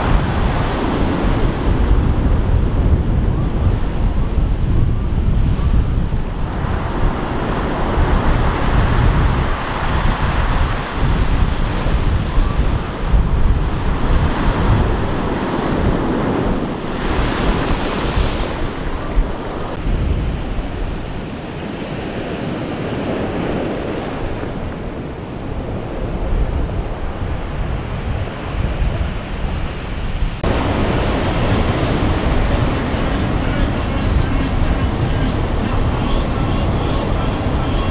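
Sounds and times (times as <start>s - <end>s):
surf crashing against seawall: 0.0s - 3.0s, 6.4s - 19.8s, 30.4s - 37.9s
wind buffeting microphone: 0.0s - 37.9s.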